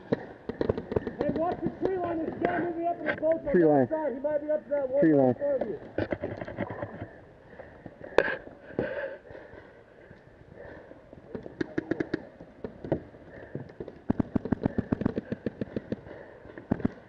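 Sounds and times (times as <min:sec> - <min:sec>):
paintball markers firing: 0:00.0 - 0:02.6, 0:11.3 - 0:17.0.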